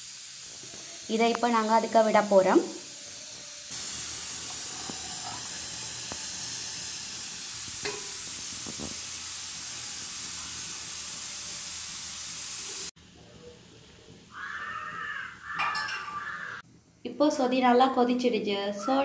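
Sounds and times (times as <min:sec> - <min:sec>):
pot hissing on stove: 0:00.0 - 0:16.6.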